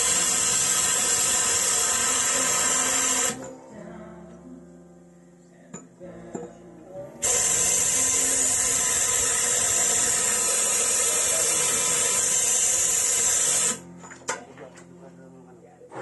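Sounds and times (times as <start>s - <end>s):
compressed air hissing: 0.0s - 3.5s, 7.2s - 13.8s.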